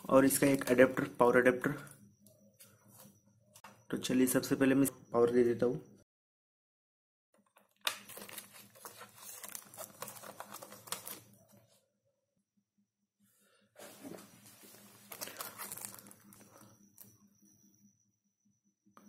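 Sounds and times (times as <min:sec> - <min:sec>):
plastic film crinkling: 0:07.9 - 0:11.3, 0:14.6 - 0:16.6.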